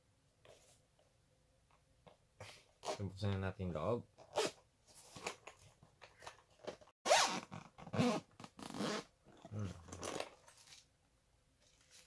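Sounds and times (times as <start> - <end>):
zipper being pulled open: 4.3 - 4.6, 7.1 - 10.3.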